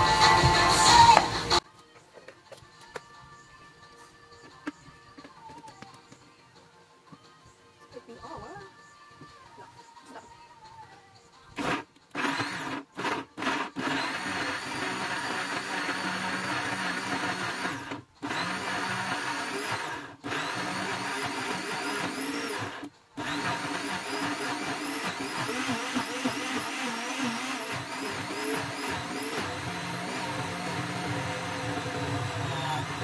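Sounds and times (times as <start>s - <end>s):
blender chopping: 11.6s - 33.0s.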